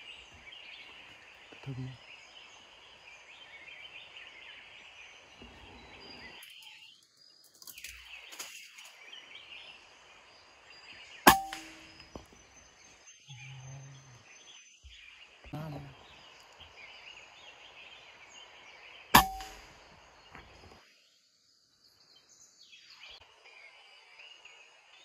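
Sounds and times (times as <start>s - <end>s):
high background hiss: 0.0s - 13.2s, 13.9s - 25.0s
air rifle shot: 11.3s - 12.0s, 19.2s - 19.8s.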